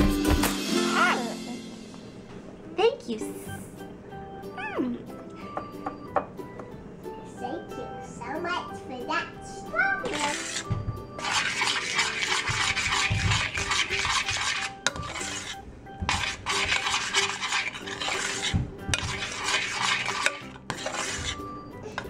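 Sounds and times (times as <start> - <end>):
metal spoon scraping saucepan: 10.0 - 22.0.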